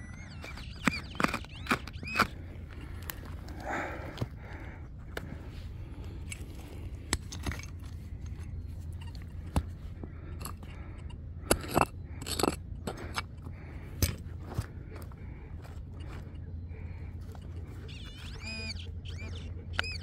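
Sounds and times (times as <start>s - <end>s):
digging tool scraping stony soil: 0.2s - 3.6s.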